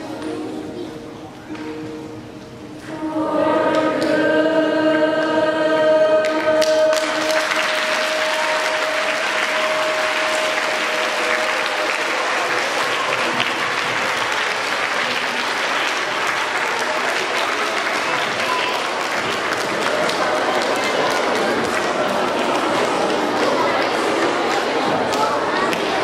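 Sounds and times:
group singing: 2.8s - 13.0s
applause: 6.6s - 26.0s.

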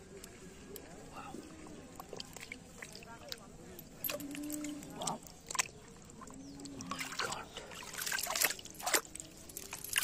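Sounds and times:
water sloshing and trickling: 0.0s - 10.0s
metal chain pulled through water: 3.7s - 5.7s, 6.9s - 10.0s
sharp water splashes: 6.9s - 10.0s.

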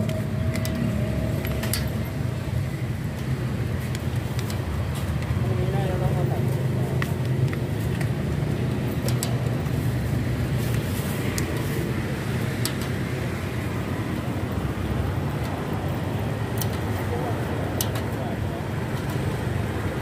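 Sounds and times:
wire baskets clicking in pot: 0.0s - 2.3s, 8.8s - 9.7s, 12.5s - 13.1s, 15.3s - 17.1s, 17.7s - 18.2s
street traffic rumble: 0.0s - 20.0s.

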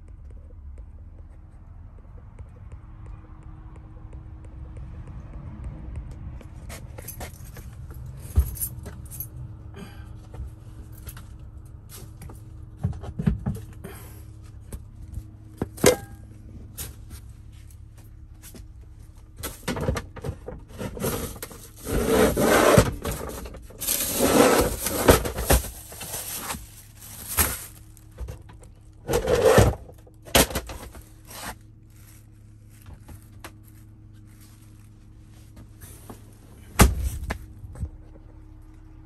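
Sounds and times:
rubbing and scraping of clutter: 19.4s - 37.4s
plastic bag rustling: 23.0s - 28.2s.

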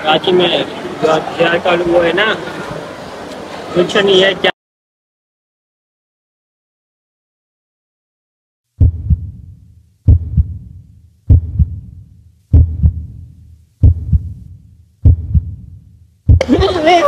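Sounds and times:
heartbeat thumps: 8.8s - 16.8s.

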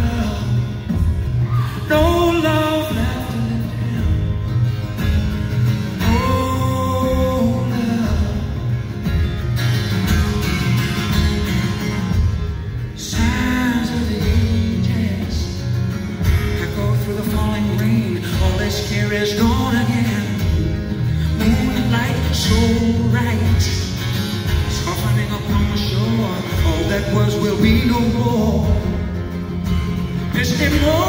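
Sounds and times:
person singing: 0.0s - 4.5s, 6.0s - 8.7s, 16.5s - 29.0s
country-folk band playing: 0.0s - 31.0s.

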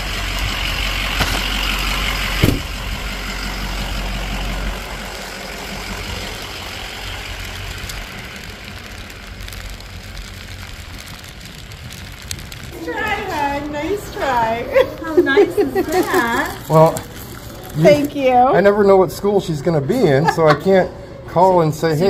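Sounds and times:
diesel pickup idling: 0.0s - 18.5s
rain hiss: 0.0s - 18.7s
door shutting thump: 2.4s - 2.9s.

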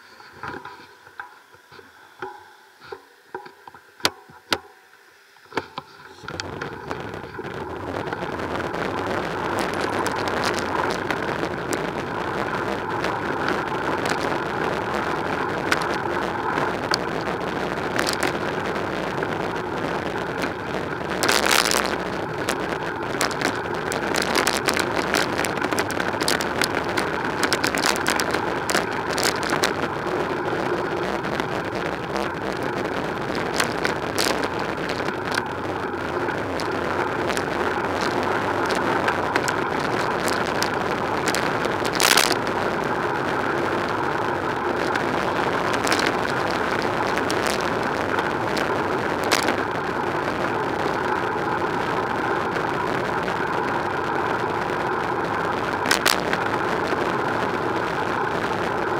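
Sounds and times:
wind and bicycle tyres rushing: 6.1s - 58.9s.

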